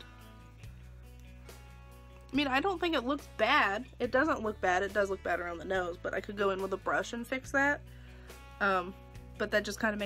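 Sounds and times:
background music with low notes: 0.0 - 10.0.

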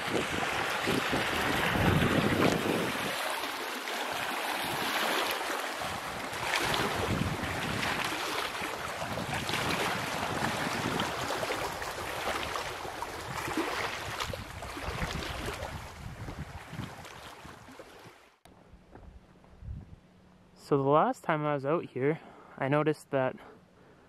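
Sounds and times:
wind buffeting microphone: 0.0 - 3.2, 5.8 - 17.7, 19.0 - 20.1
small waves lapping on stones: 0.1 - 15.8.

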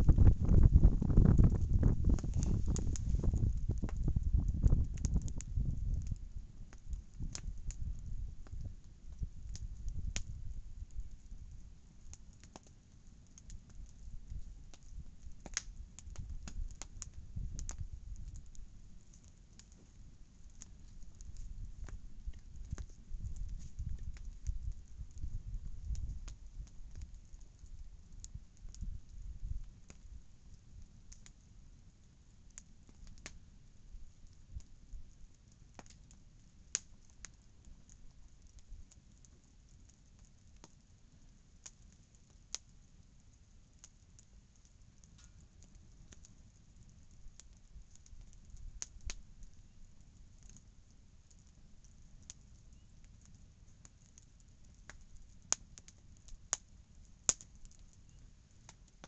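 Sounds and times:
sharp pops of fire: 0.0 - 10.4, 13.4 - 27.6, 47.4 - 49.5, 57.3 - 57.9
campfire crackling: 0.0 - 59.0.

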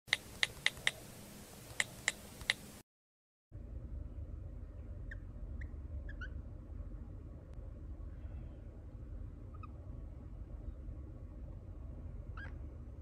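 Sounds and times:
low room hum: 3.5 - 13.0
cockatiel chirping softly: 5.0 - 6.4, 9.5 - 9.8, 12.3 - 12.6.

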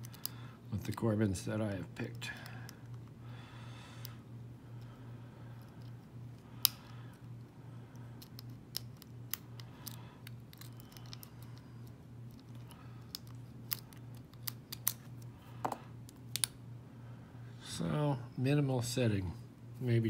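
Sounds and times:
low steady hum: 0.0 - 20.0
lock picking clicks and scrapes: 7.9 - 15.3.

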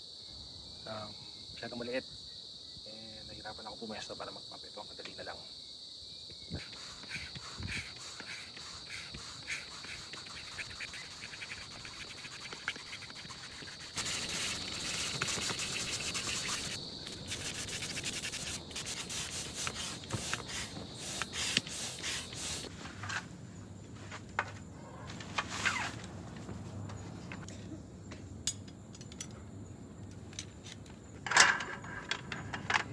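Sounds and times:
hand pump strokes rushing air: 6.5 - 22.7.

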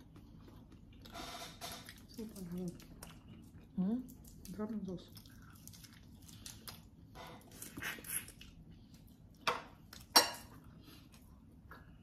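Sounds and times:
dishes clinking: 9.4 - 10.6.

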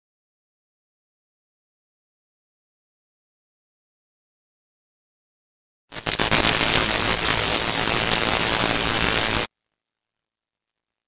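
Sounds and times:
crackling static hiss: 5.9 - 11.0.

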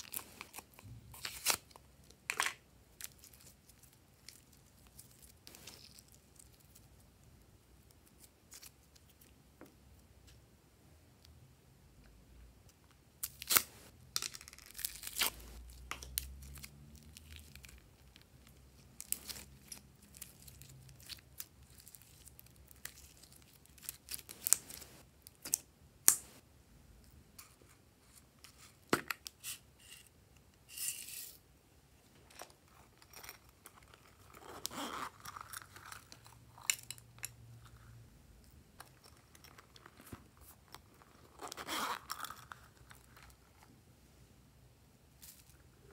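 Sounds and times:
slime rustling: 17.0 - 25.0.

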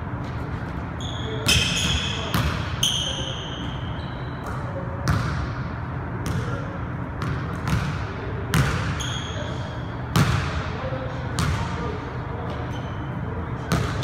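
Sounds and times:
sneaker squeak: 0.1 - 5.5, 7.2 - 10.4, 12.4 - 14.0.

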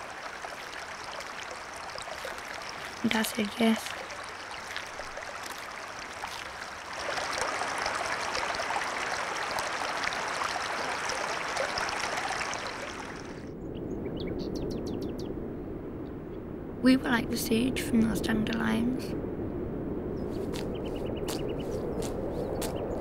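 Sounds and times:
stream rushing over rocks: 0.0 - 13.5.

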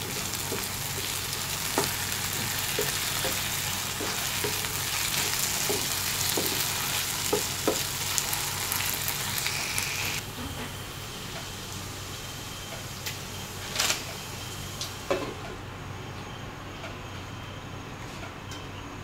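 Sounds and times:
food sizzling in a pan: 0.0 - 15.0.

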